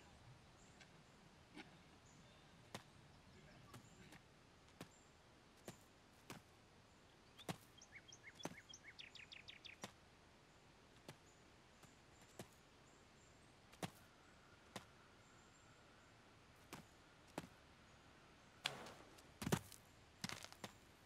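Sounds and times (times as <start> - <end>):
soft steps on dirt path: 2.6 - 13.0, 13.6 - 15.2, 16.5 - 17.7, 18.6 - 21.0
small bird twittering: 7.2 - 9.9.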